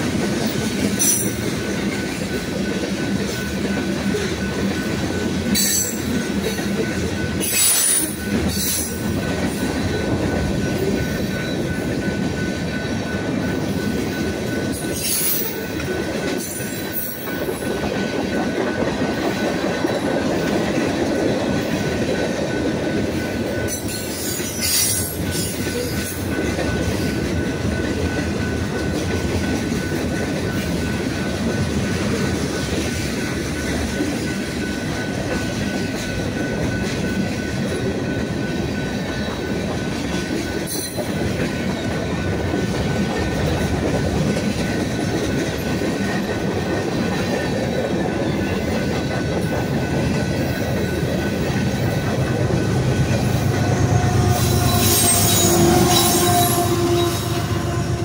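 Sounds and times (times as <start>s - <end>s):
freight train wheels on rails: 0.0s - 58.0s
locomotive engine hum: 49.0s - 58.0s
high-pitched wheel squeal: 53.3s - 58.0s.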